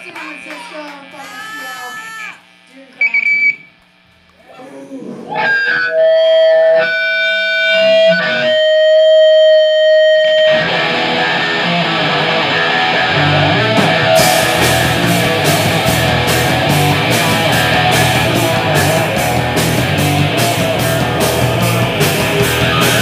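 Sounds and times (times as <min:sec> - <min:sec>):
distorted electric guitar: 0:00.0 - 0:23.0
punk band playing: 0:05.3 - 0:23.0.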